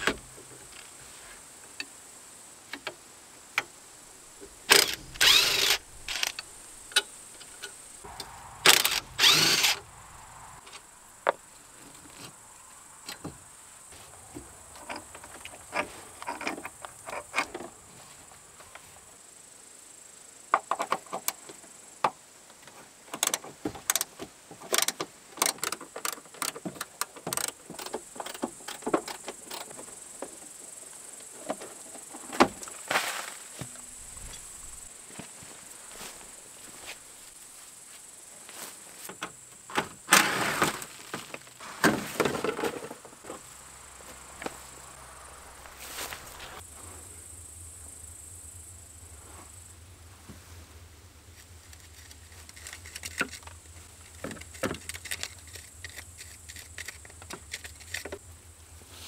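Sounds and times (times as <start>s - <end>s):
cordless impact wrench bursts: 4.7s - 6.4s, 8.7s - 9.8s.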